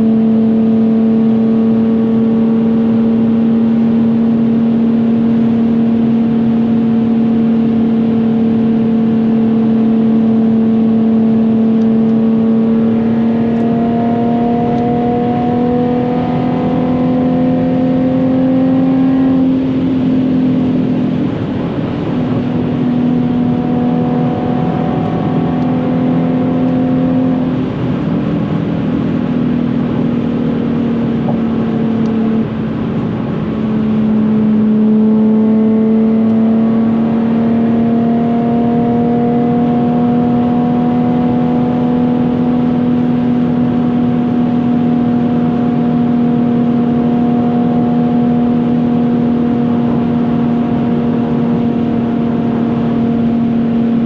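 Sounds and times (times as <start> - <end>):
car engine drone: 0.0 - 54.0.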